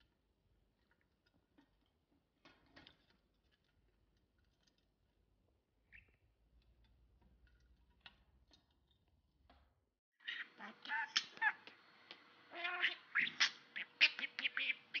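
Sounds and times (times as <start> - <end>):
bird pecking cage floor and dish: 0.0 - 9.7.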